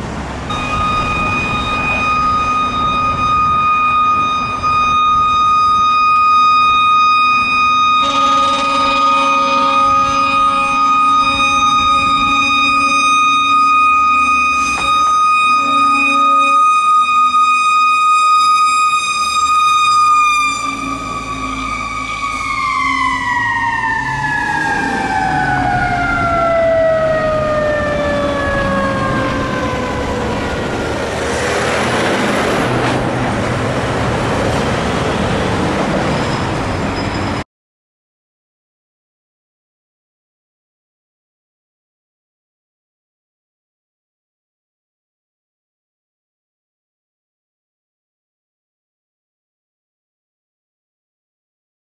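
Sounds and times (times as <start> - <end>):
truck engine passing: 0.0 - 5.3, 19.1 - 37.4
mechanical fire siren winding down: 0.5 - 37.1.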